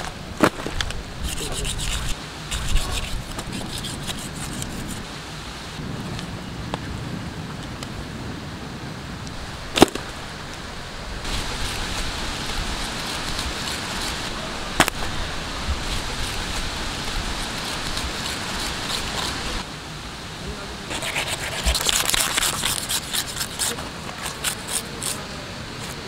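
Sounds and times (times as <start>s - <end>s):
knife scraping through fish skin: 1.2s - 5.0s, 17.3s - 19.4s, 20.9s - 25.2s.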